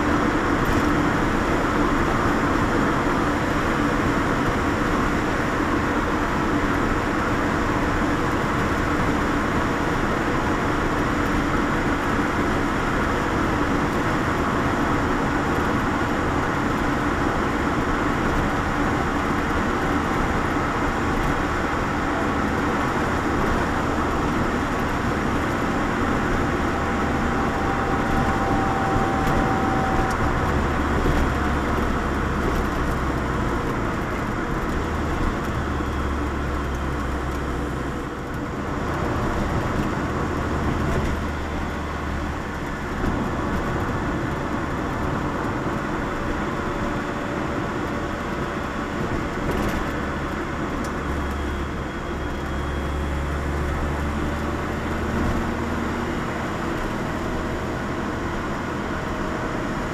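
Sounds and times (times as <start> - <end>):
car engine and tyre noise: 0.0 - 59.9.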